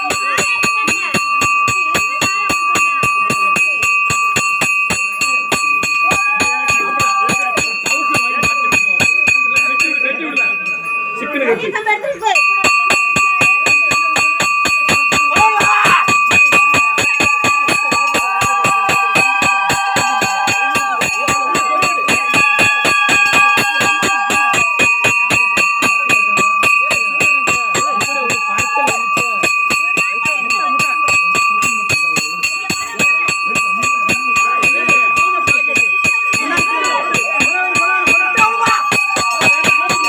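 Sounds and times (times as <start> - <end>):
fast drum beat: 0.0 - 9.9, 12.4 - 40.0
bell ringing: 0.0 - 40.0
wavering melody: 0.0 - 40.0.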